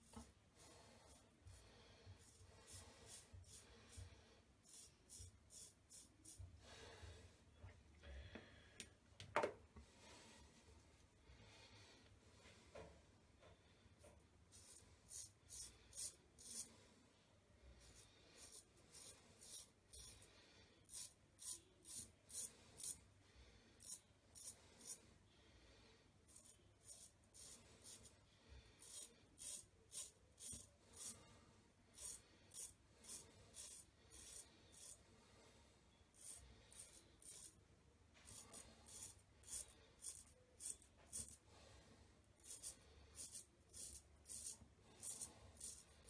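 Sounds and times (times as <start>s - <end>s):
razor scraping stubble: 36.2s - 37.6s, 42.4s - 46.0s.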